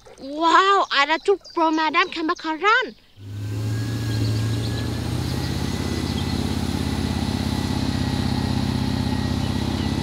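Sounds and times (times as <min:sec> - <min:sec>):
fire truck engine throbbing: 0:03.2 - 0:10.0.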